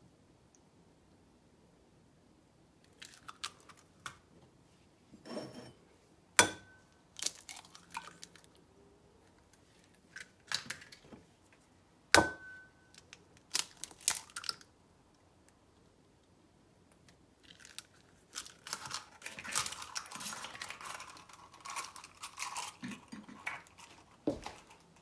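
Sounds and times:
eggshell crackling: 2.9s - 4.0s, 7.1s - 8.6s, 12.9s - 14.7s, 16.9s - 25.0s.

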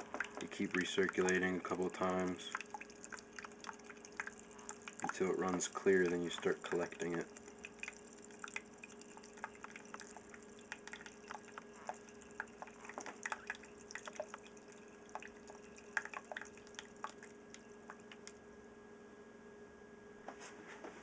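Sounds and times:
liquid dripping into plastic pitcher: 0.0s - 18.4s
steady low hum: 0.0s - 20.4s.

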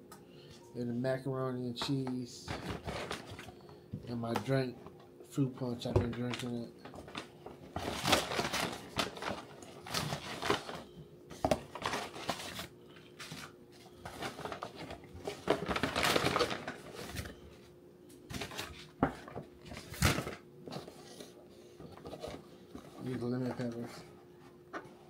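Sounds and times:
paper bag rustling and crinkling: 1.9s - 3.6s, 5.7s - 17.6s, 18.3s - 24.1s.

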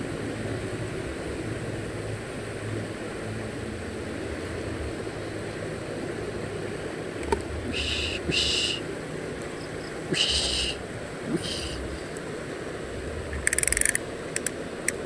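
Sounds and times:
steady outdoor hiss: 0.0s - 15.0s
short high animal calls: 7.6s - 8.9s, 9.6s - 12.1s
sharp click: 13.4s - 15.0s.

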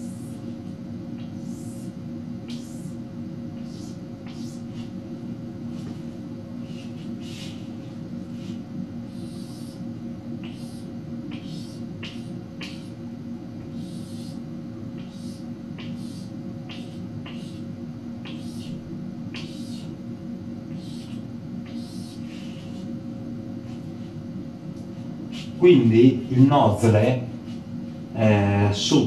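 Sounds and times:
chalk scratching on blackboard: 3.6s - 4.9s, 20.7s - 22.9s.

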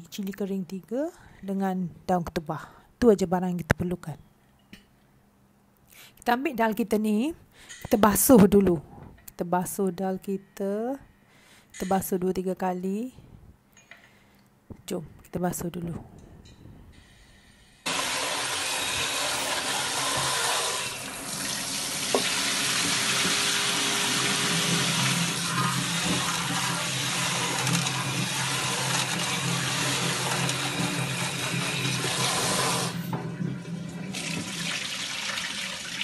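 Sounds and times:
lentils rinsed by hand: 17.9s - 33.0s
tap water splashing into pot: 22.1s - 23.4s.

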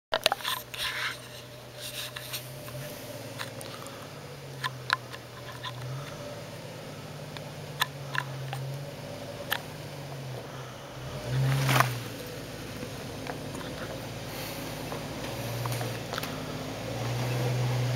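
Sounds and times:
car engine at low speed: 0.1s - 17.9s
stones knocking under tyres: 11.2s - 12.2s.

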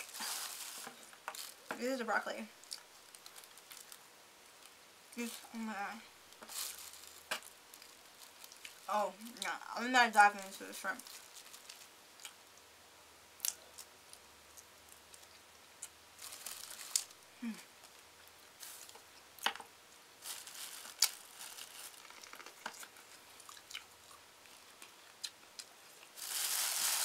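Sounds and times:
plastic bag crinkling: 0.0s - 1.8s, 2.6s - 4.0s, 6.4s - 9.0s, 10.4s - 11.9s, 16.2s - 17.2s, 18.6s - 19.0s, 20.2s - 23.2s, 26.1s - 27.0s
quiet chewing: 6.4s - 9.5s, 21.8s - 26.2s.

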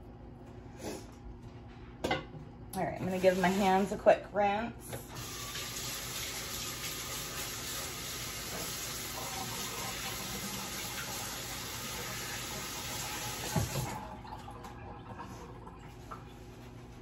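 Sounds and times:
faucet water running: 3.0s - 4.0s, 4.8s - 16.6s.

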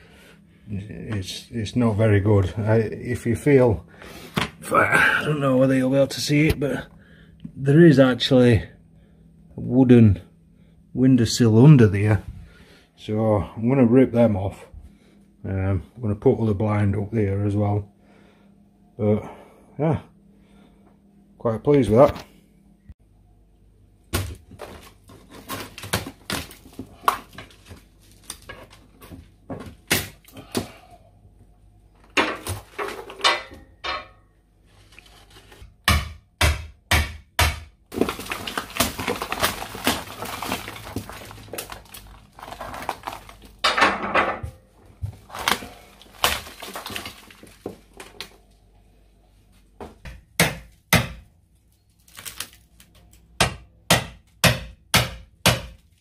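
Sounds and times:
wood tearing and breaking: 24.1s - 28.9s, 37.9s - 43.6s, 45.2s - 48.4s, 51.9s - 53.2s.

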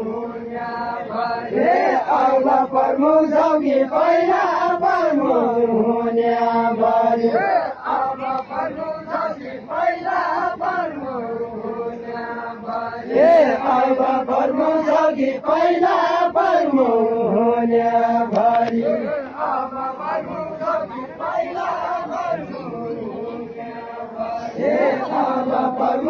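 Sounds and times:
crowd singing a chant: 0.0s - 26.0s.

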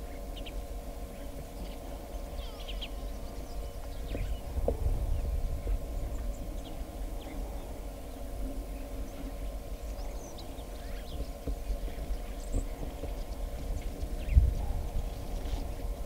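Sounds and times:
faint bird chirps: 0.0s - 4.5s
low rumble and hum: 0.0s - 16.0s.

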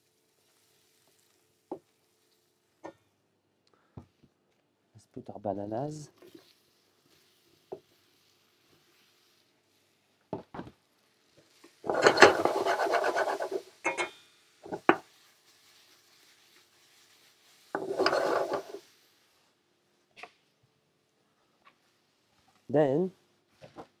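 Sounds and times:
pan rattling and scraping on hotplate: 11.8s - 15.0s, 17.7s - 18.9s.

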